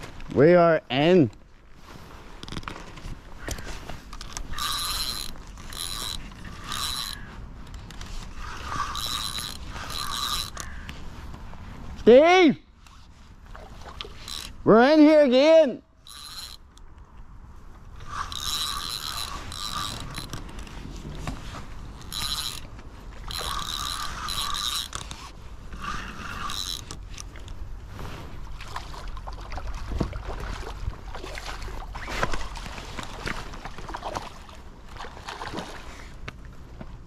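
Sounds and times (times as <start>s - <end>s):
fishing reel whirring: 3.4s - 10.9s, 14.0s - 14.6s, 16.0s - 16.8s, 18.0s - 20.7s, 21.8s - 27.3s
reel grinding and clicking: 3.4s - 11.0s, 14.0s - 15.4s, 16.0s - 16.8s, 17.9s - 27.6s.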